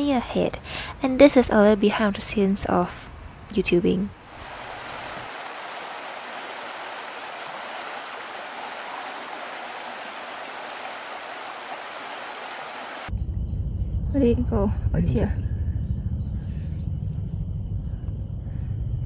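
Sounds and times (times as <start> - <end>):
rushing water: 4.2 - 13.1.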